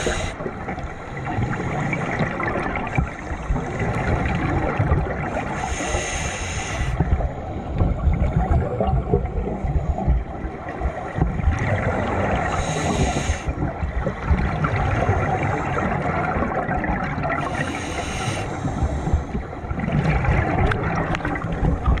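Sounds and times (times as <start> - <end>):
regulator breathing hiss: 0.0 - 0.4, 5.5 - 7.0, 12.5 - 13.6, 17.4 - 19.3
underwater bubbling and rumbling: 0.0 - 22.0.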